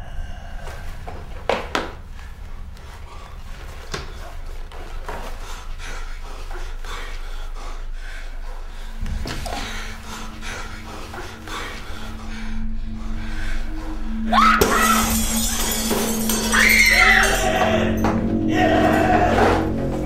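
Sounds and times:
person breathing heavily: 0:00.0 - 0:16.6
low steady hum: 0:00.0 - 0:20.0
higher steady tone: 0:09.0 - 0:20.0
sharp hit: 0:09.2 - 0:19.2.

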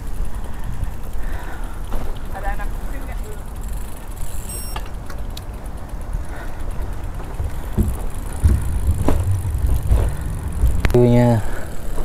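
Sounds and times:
light clicks and rattles: 0:00.0 - 0:12.0
wind buffeting microphone: 0:05.6 - 0:12.0.

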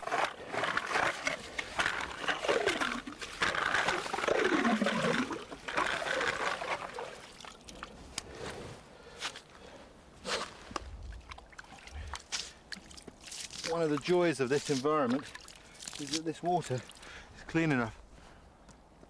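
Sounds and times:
ice auger grinding through ice: 0:00.0 - 0:07.3.

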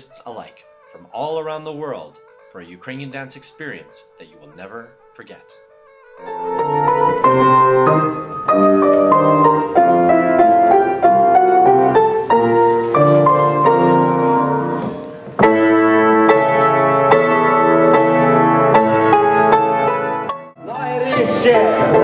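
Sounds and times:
solo piano classical music: 0:06.0 - 0:22.0.

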